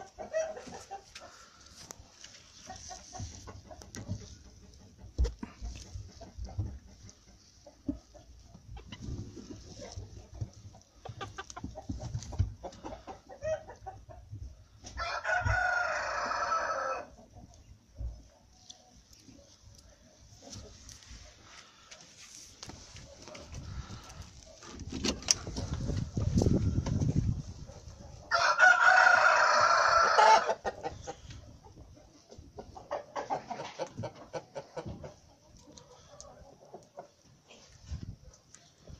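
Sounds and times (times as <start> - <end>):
chicken clucking: 0.0 - 38.9
rooster crowing: 15.0 - 17.1, 28.3 - 30.6.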